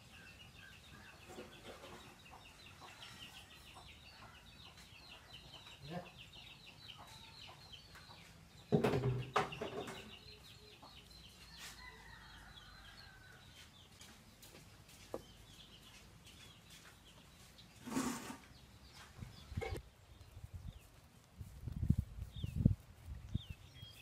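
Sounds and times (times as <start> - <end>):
chickens clucking: 0.7 - 11.7, 15.1 - 19.9.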